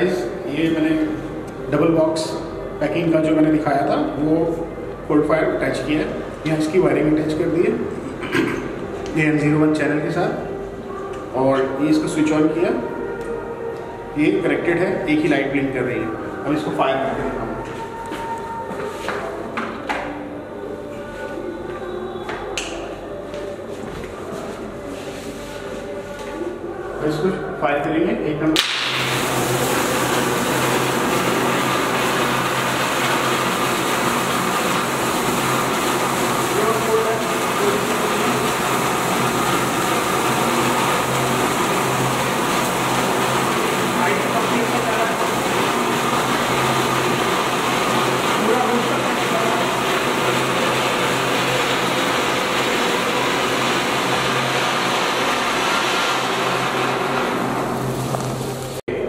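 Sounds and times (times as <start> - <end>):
spark fountain hissing: 28.6 - 58.8.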